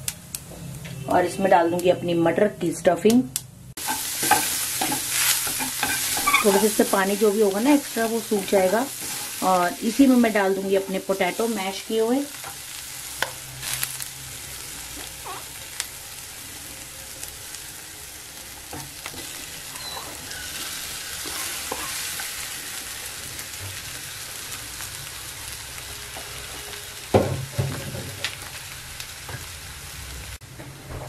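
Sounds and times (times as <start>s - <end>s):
peas sizzling in frying pan: 3.7s - 30.6s
wooden spatula scraping: 3.8s - 11.6s, 19.2s - 22.3s.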